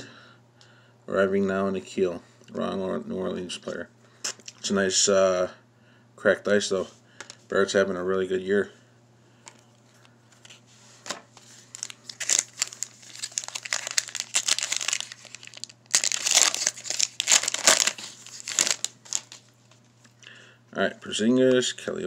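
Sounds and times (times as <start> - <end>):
foil wrapper crinkling and tearing: 11.4 - 19.6.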